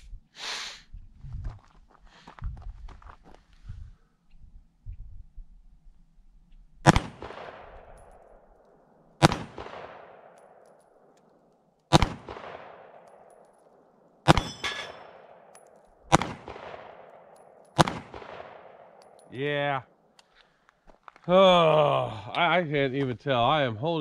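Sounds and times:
pistol shots echoing: 6.8s - 8.4s, 9.2s - 11.2s, 11.9s - 19.3s.

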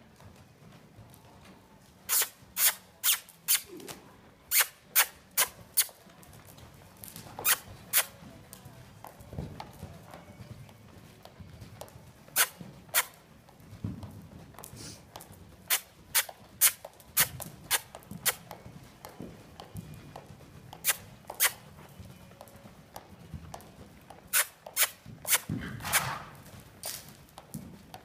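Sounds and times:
soft hoofbeats on dirt: 0.0s - 28.0s
horse breathy rush: 14.6s - 18.5s, 20.8s - 21.7s, 24.3s - 27.1s.

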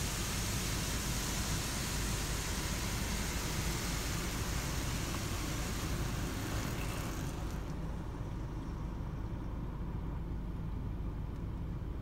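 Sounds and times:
water spraying on car: 0.0s - 8.0s.

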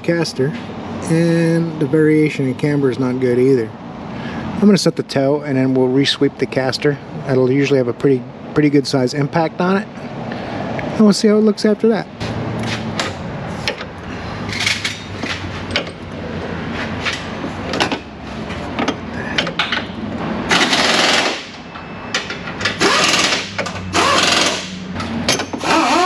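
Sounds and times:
pneumatic tool rattling bursts: 20.5s - 21.6s, 22.6s - 24.8s, 25.4s - 26.0s.

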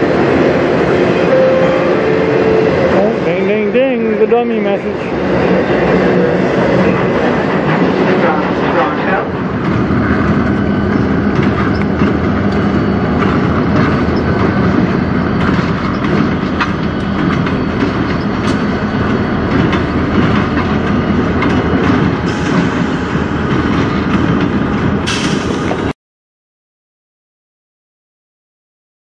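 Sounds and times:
locomotive engine hum: 0.0s - 25.9s
train wheels rumbling: 0.0s - 25.9s
wheels clicking over rail joints: 3.3s - 25.9s.

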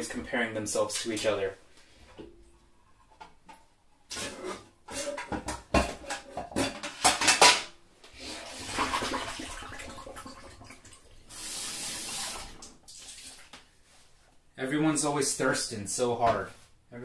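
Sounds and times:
dishes clattering in a sink: 3.0s - 7.8s
tap water running: 8.0s - 13.7s.

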